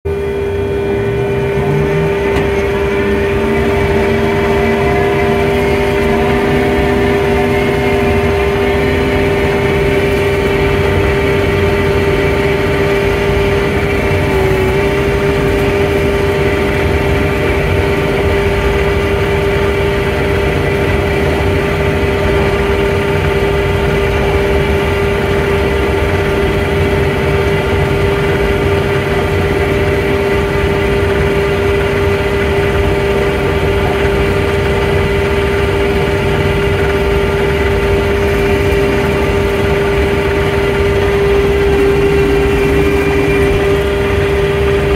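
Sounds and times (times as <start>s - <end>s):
snowplow engine running: 0.0s - 44.9s
steady whine: 0.0s - 44.9s
blade pushing snow: 0.3s - 17.6s, 37.4s - 44.9s.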